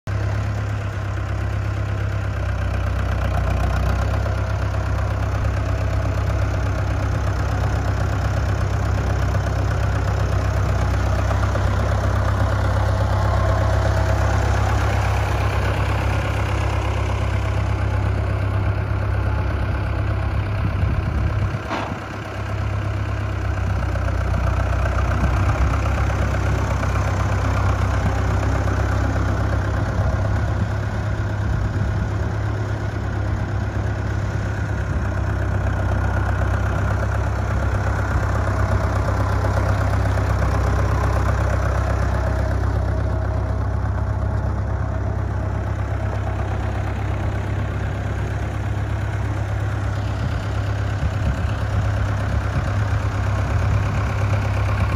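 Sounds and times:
tractor engine running: 0.1s - 54.9s.

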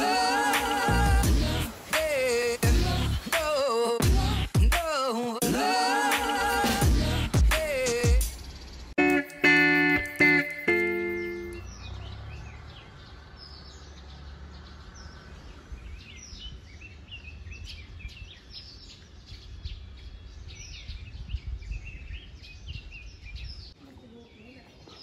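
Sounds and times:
small birds chirping: 7.7s - 25.0s.

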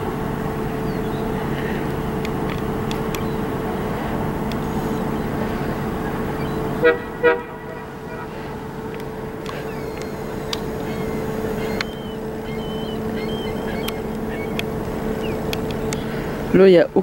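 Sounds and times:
ship mechanical hum: 0.0s - 17.0s
short horn toots: 6.8s - 8.6s.

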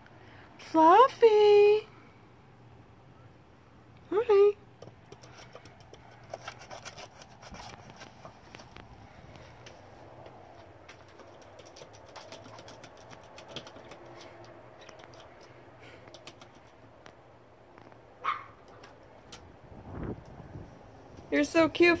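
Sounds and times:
dog yip: 18.2s - 18.6s.

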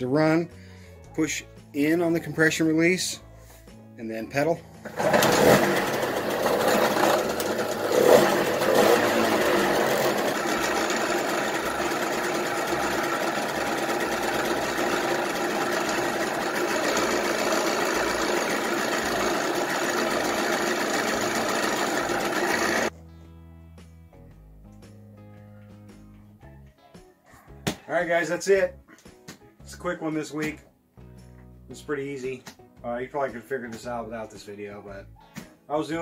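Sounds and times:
two-stroke engine running: 4.8s - 22.9s.

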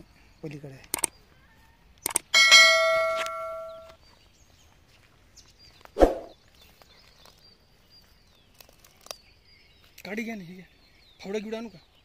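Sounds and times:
metal object ringing: 2.4s - 3.9s.

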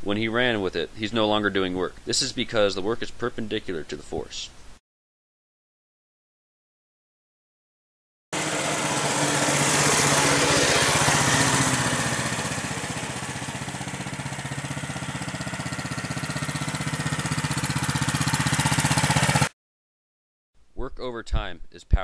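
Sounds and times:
small engine putter: 8.4s - 19.5s.

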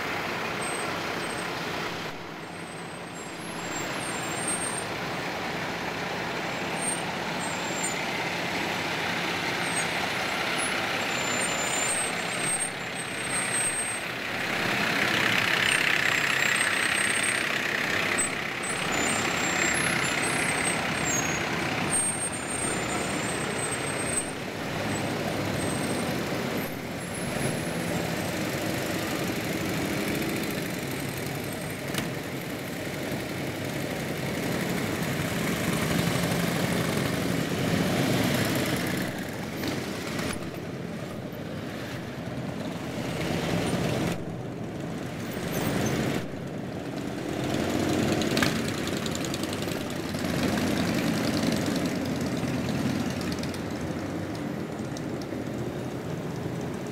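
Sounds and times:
motorcycles riding past: 44.8s - 56.9s.

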